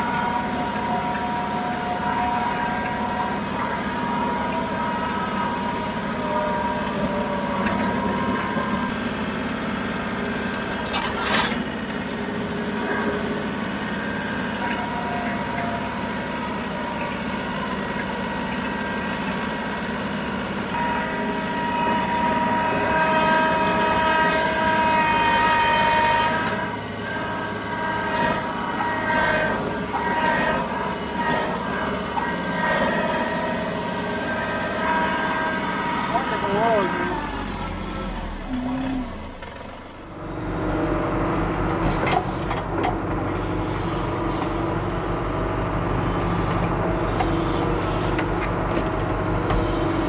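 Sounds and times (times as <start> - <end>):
tractor diesel engine running: 0.0 - 21.5, 35.6 - 50.0
steady whine: 36.1 - 50.0.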